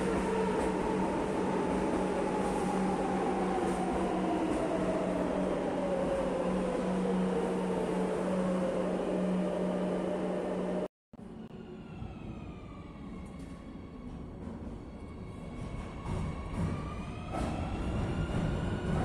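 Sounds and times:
train wheels rumbling on rails: 12.5s - 19.0s.

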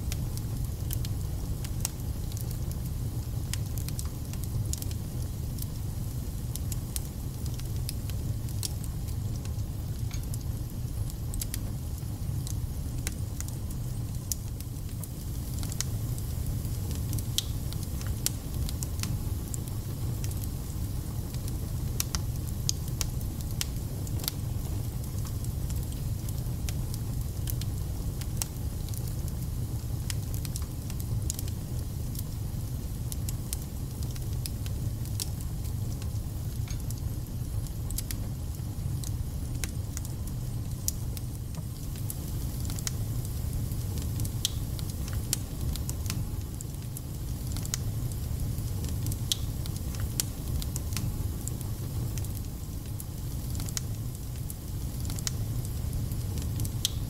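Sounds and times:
wood fire crackling: 0.0s - 57.0s.

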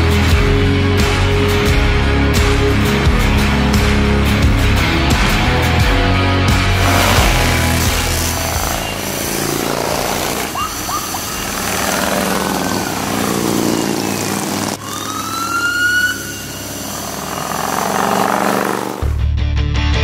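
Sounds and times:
motorcycles riding past: 6.8s - 19.2s
siren-like rising tone: 9.6s - 19.0s.

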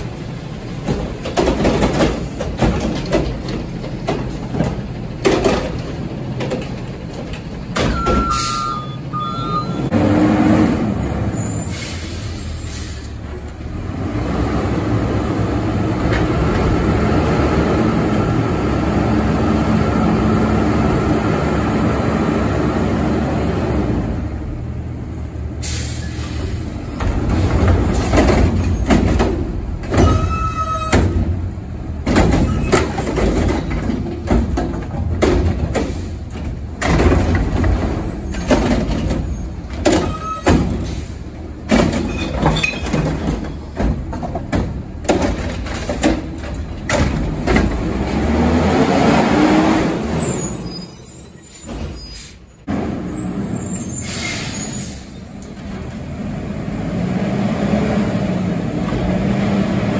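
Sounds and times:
metallic clanks and bangs: 0.0s - 8.5s, 26.9s - 48.4s
diesel truck engine running: 0.0s - 11.4s.

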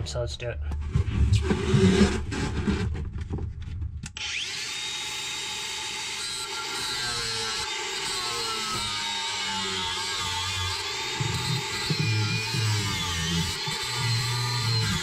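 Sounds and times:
angle grinder cutting: 4.2s - 15.0s.

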